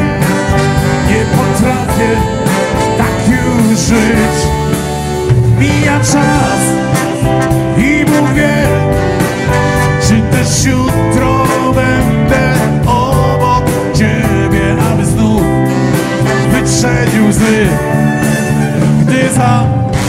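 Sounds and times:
big band playing: 0:00.0 - 0:20.0.

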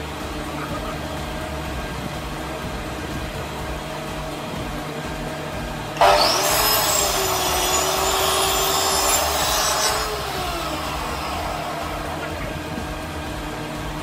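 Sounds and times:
power tool cutting wood: 0:06.0 - 0:12.9.

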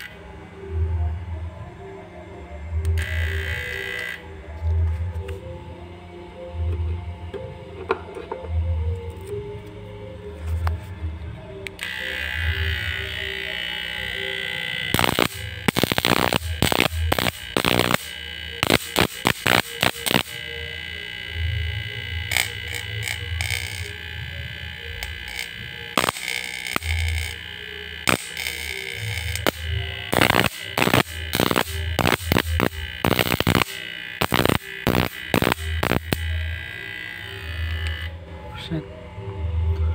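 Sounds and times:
high buzzing tone: 0:00.0 - 0:01.1, 0:02.8 - 0:07.7, 0:11.6 - 0:39.9
spark crackles: 0:11.8 - 0:38.0.

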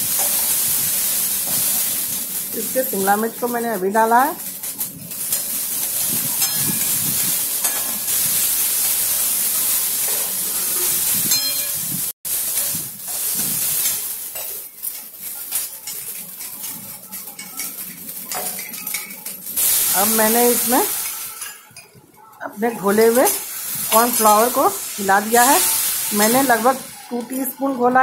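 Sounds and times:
vegetables sizzling in wok: 0:00.0 - 0:28.0
spatula scraping and clinking pan: 0:04.6 - 0:11.9, 0:12.5 - 0:19.9, 0:20.9 - 0:24.6.

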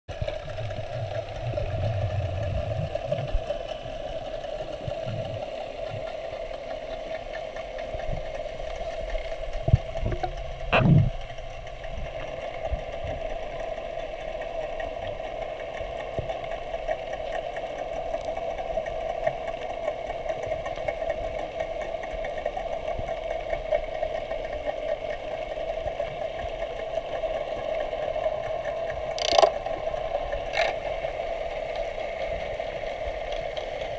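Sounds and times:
low rumbling: 0:00.1 - 0:06.2, 0:08.9 - 0:12.2
underwater mechanical drone: 0:00.1 - 0:33.9.

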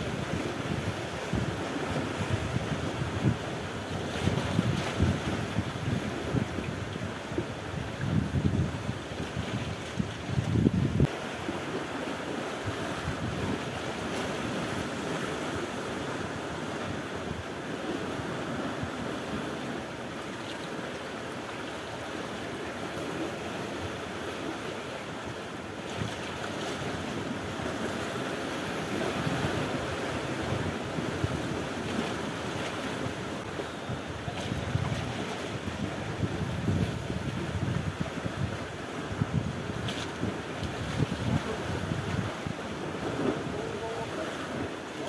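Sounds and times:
wind buffeting microphone: 0:00.0 - 0:11.1, 0:28.8 - 0:44.8
waves breaking against rocks: 0:00.0 - 0:45.0.

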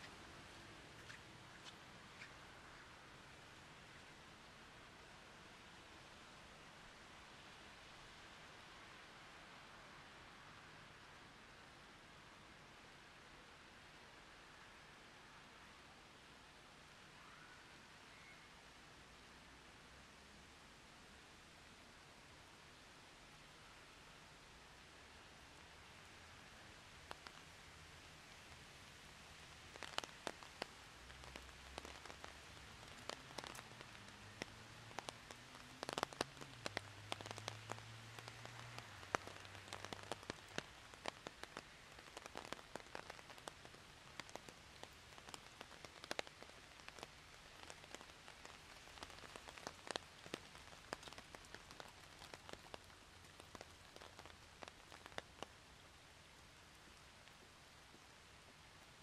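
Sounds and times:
sharp raindrops tapping: 0:00.0 - 0:05.1, 0:24.3 - 0:59.0
rain falling: 0:00.0 - 0:59.0.

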